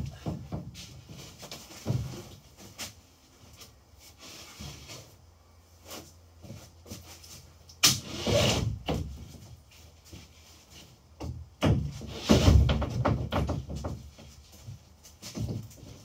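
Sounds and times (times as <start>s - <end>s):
plywood panel scraping: 11.7s - 16.0s
plywood panel knocking: 12.6s - 14.2s.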